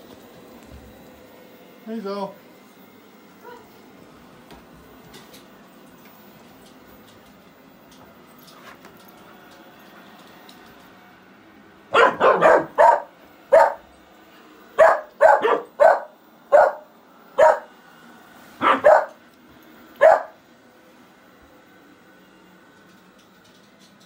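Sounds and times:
robot vacuum humming: 0.0 - 24.0
dog barking: 3.4 - 3.7, 11.9 - 13.8, 14.8 - 17.7, 18.6 - 19.2, 20.0 - 20.4.

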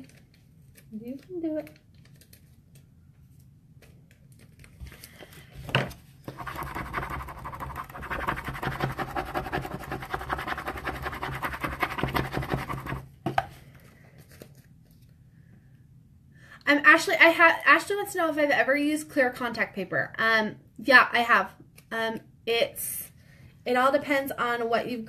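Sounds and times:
tape peeling crackle: 0.0 - 5.1.

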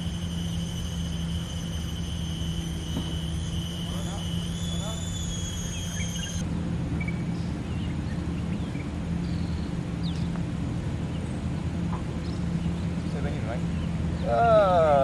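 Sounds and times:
faint chirps: 0.0 - 6.4
high whine: 0.0 - 7.2
low mechanical hum: 0.0 - 15.0.

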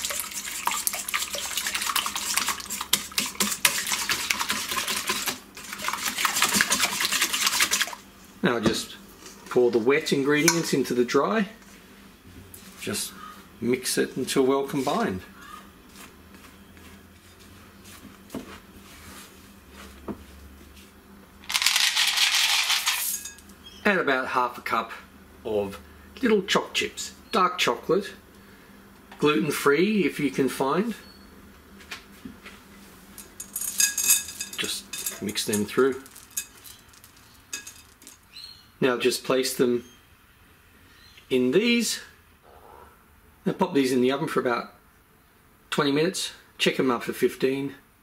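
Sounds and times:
whisk clinking in metal bowl: 0.0 - 8.0, 33.2 - 36.9, 37.5 - 38.1
chocolate chips rattling into bowl: 21.5 - 23.4, 33.2 - 38.2.

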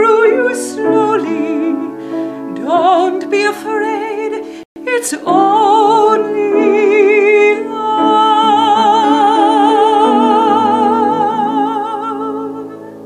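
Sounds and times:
person singing with vibrato: 0.0 - 13.0.

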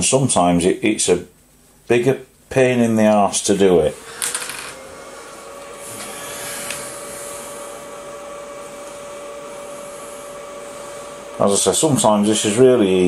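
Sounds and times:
machine hum: 2.5 - 13.0.

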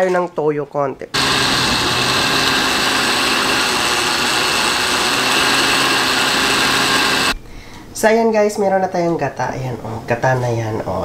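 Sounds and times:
blender motor whirring: 1.2 - 7.4.

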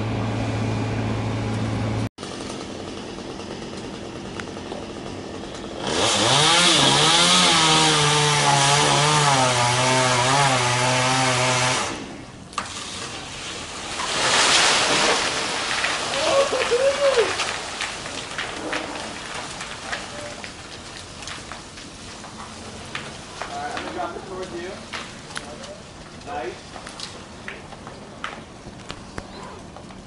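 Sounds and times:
low engine hum: 0.0 - 5.8
chainsaw revving and cutting: 2.2 - 12.2.

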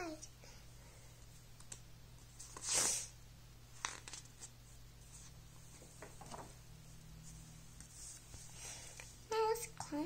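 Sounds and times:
paper page rustling: 3.8 - 5.4.

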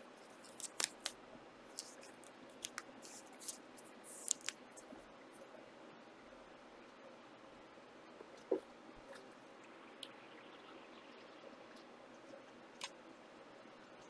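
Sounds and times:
cards swishing and clicking: 0.4 - 1.2, 1.8 - 4.9.

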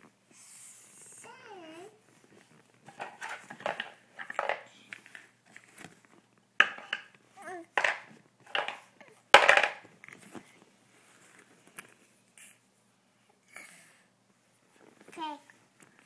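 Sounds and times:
wooden toy blocks clacking: 3.0 - 4.7, 7.7 - 9.8.

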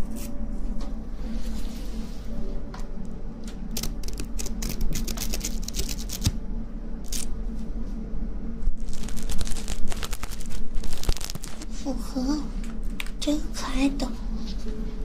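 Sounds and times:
steady low hum: 0.0 - 15.0
crisp rustling crackles: 8.8 - 11.9.

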